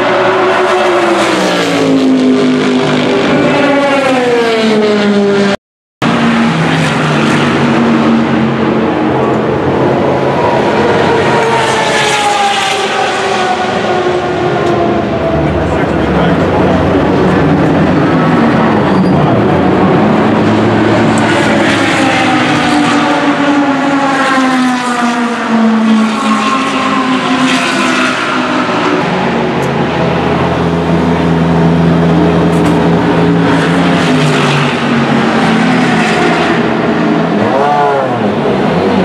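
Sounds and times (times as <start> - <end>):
race car engines passing: 0.0 - 39.0.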